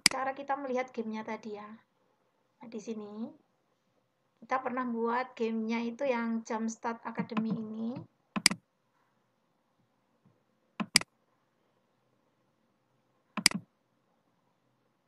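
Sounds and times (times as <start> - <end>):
computer mouse clicks: 7.3 - 8.6, 10.8 - 11.1, 13.4 - 13.7.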